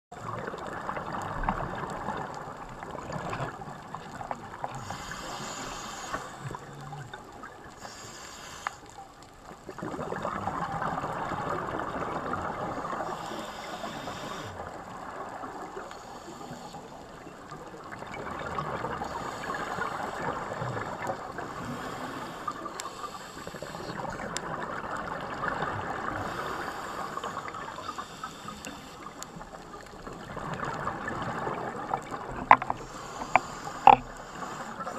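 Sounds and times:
gurgling exhaled bubbles: 0.1 - 7.8, 9.5 - 15.8, 17.1 - 34.9
regulator inhalation hiss: 4.8 - 6.5, 7.8 - 8.9, 13.1 - 14.6, 21.6 - 24.2, 26.2 - 29.2, 32.8 - 34.9.

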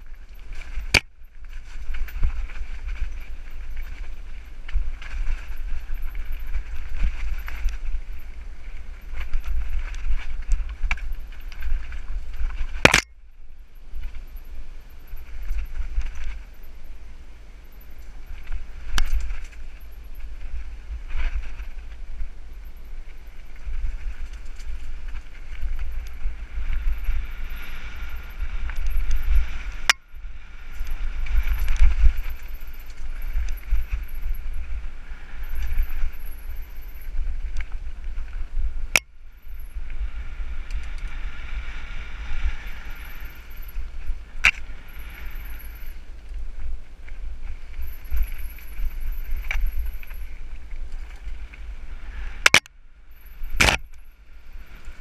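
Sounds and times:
wind rumbling on microphone: 0.0 - 55.0.

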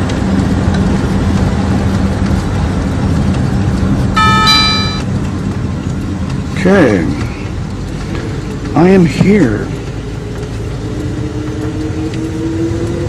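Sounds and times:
car engine and road noise: 0.0 - 13.0
two-note electronic chime: 4.2 - 5.1.

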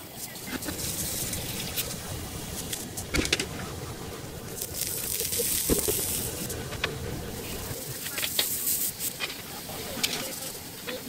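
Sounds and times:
food sizzling on hot plates: 0.0 - 11.0
low steady rumble: 0.2 - 8.0.

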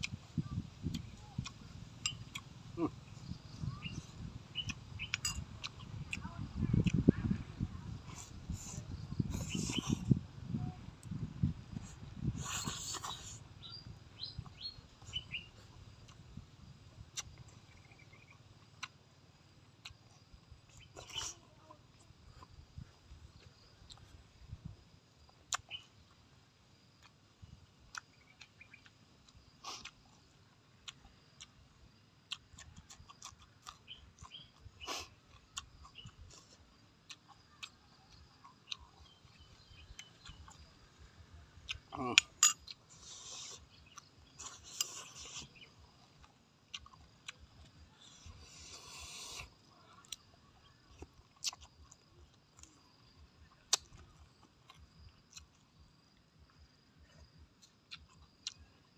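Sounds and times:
chewing and mouth smacks: 0.0 - 7.1, 17.0 - 19.0, 19.7 - 24.2, 25.2 - 26.2, 27.9 - 31.6, 32.2 - 58.9
small birds chirping: 0.0 - 58.9
eating clicks: 0.8 - 7.1, 32.3 - 55.8, 56.4 - 58.9.

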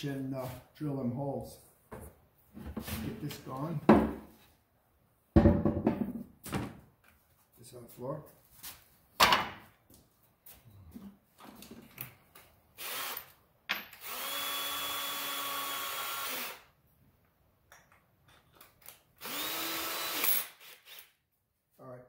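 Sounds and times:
loud knock: 5.4 - 6.2
power drill with hole saw: 12.8 - 13.4, 14.0 - 16.7, 19.2 - 21.2.

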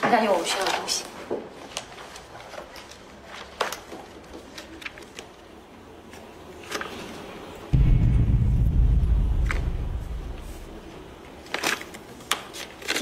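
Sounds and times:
paper rustling: 0.3 - 7.2.

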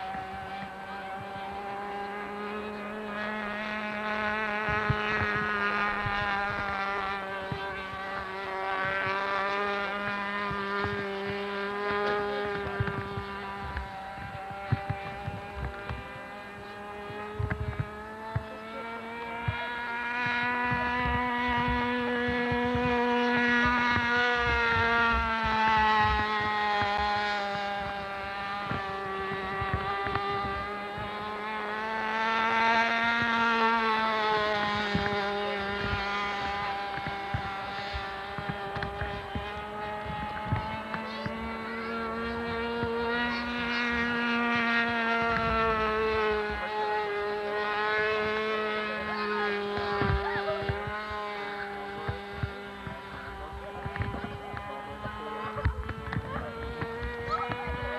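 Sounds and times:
model plane engine buzzing: 0.0 - 57.9.

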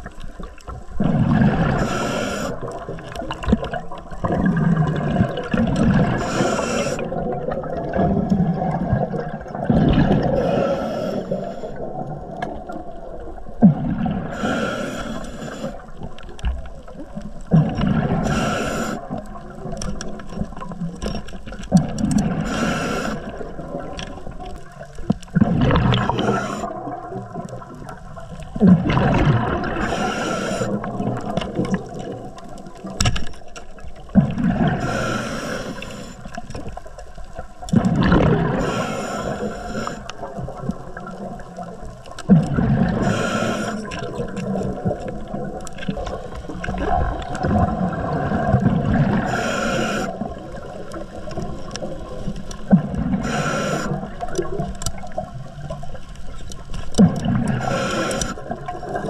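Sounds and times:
exhaled air bubbling: 0.0 - 59.0
regulator inhale hiss: 1.6 - 3.1, 6.0 - 7.2, 10.2 - 11.9, 14.2 - 16.0, 18.2 - 19.3, 22.3 - 23.6, 25.9 - 26.8, 29.7 - 31.0, 34.6 - 36.5, 38.5 - 40.3, 42.8 - 44.1, 49.2 - 51.1, 53.1 - 54.5, 57.6 - 58.6.

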